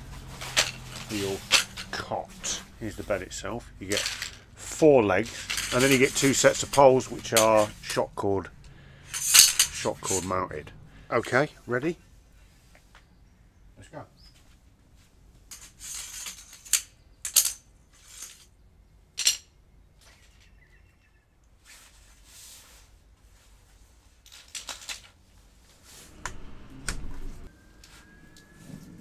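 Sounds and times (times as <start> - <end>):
metal poles clicking together: 0.4 - 2.6, 3.8 - 10.4.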